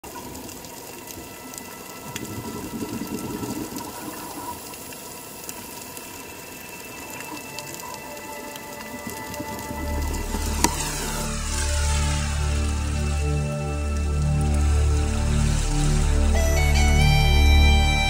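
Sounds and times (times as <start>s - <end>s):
thin steady tones: 0.1s - 18.0s
underwater watery hiss: 1.1s - 13.7s.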